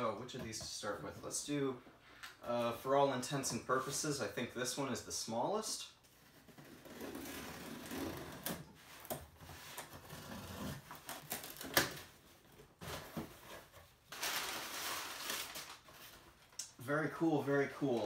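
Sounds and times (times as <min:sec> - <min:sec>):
tape crackling and tearing: 0:06.1 - 0:12.1, 0:14.1 - 0:16.7
packing paper rustling: 0:08.8 - 0:16.6.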